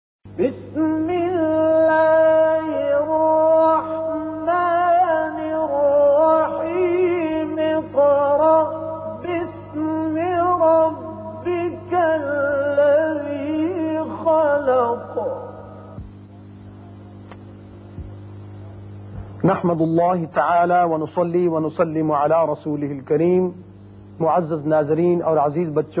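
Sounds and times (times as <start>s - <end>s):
steady low hum: 0.3s - 26.0s
person chanting unaccompanied: 0.4s - 16.1s.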